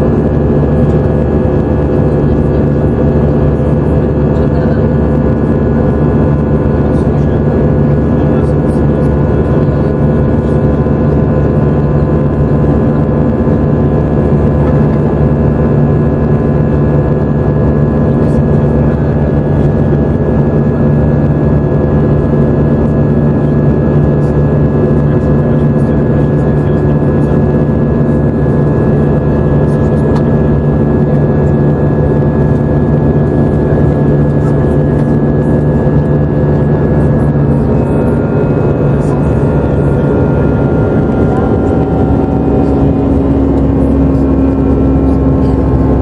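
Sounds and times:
airliner cabin engine rush: 0.0 - 46.0
constant low hum: 0.0 - 46.0.

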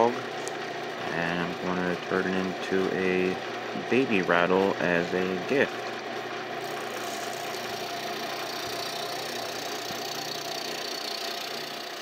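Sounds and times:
turning tool cutting wood: 0.0 - 12.0
wood lathe running: 0.0 - 12.0.

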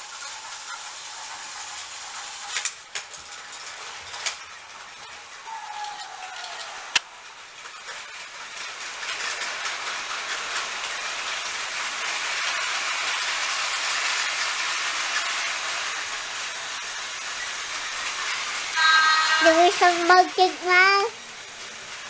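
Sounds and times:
toy trains whirring and rattling: 0.0 - 22.0.

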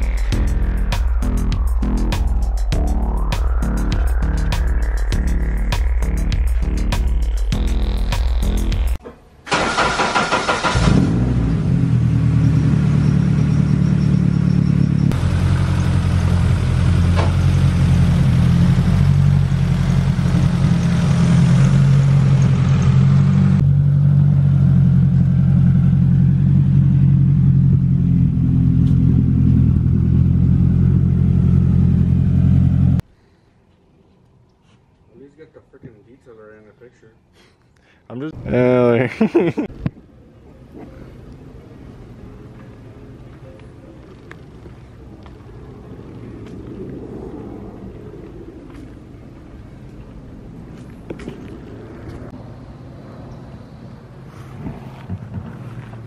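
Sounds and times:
car engine starting and idling: 0.0 - 33.0.

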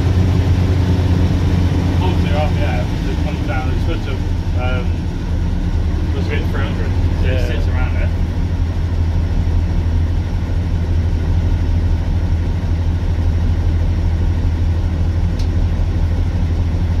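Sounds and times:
diesel engine idling: 0.0 - 17.0.

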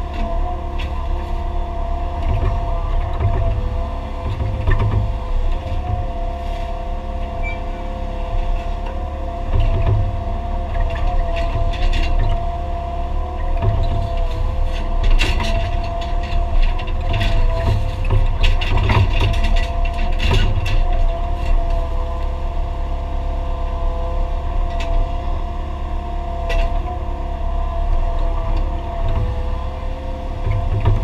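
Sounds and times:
constant whine: 0.0 - 31.0
excavator engine rumble: 0.0 - 31.0
knocks and clanks: 2.2 - 6.3, 13.3 - 21.8, 28.3 - 31.0.

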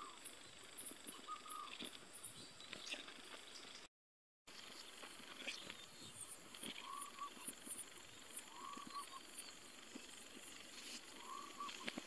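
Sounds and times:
faint high-pitched chirps: 0.0 - 3.9, 4.6 - 10.2.

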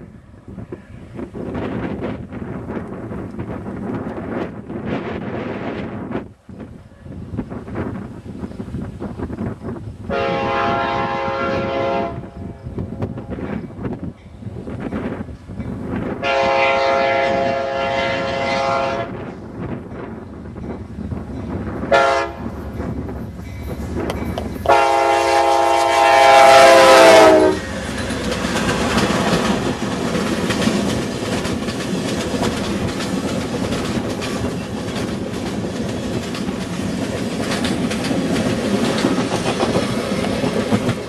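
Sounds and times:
train cars rumbling past: 0.0 - 41.0
train horn blasts: 10.1 - 13.6, 16.2 - 19.3, 21.8 - 22.6, 24.6 - 28.1
wheels clicking over rail joints: 19.3 - 24.9, 27.4 - 41.0.

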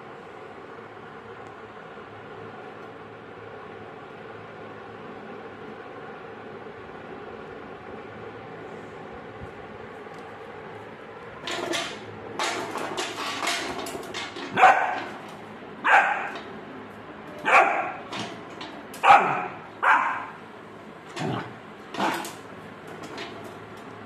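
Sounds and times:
puppy barking: 14.5 - 15.2, 15.8 - 16.4, 17.4 - 18.2, 19.0 - 20.4.

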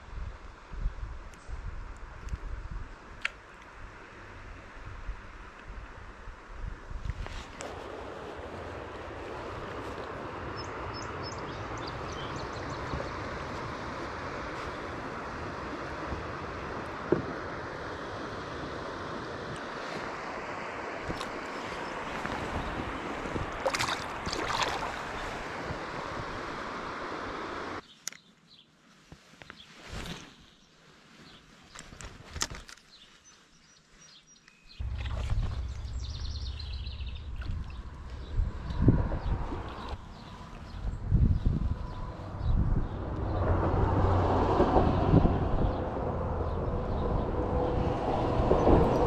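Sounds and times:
fishing rod clicks and taps: 3.2 - 3.7
water rushing over rocks: 12.9 - 27.8.

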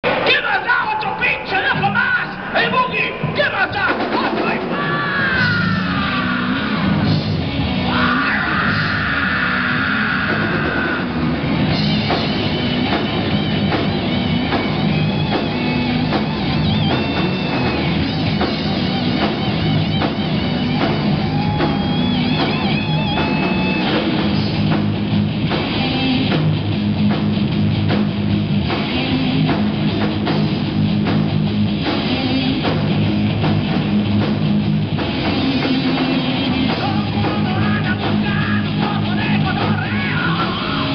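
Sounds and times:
heavy metal band playing live: 0.0 - 40.9.

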